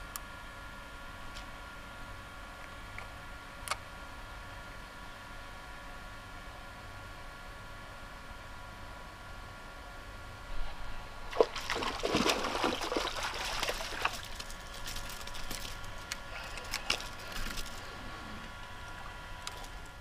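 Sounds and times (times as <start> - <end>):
fish splashing in water: 11.3 - 15.8.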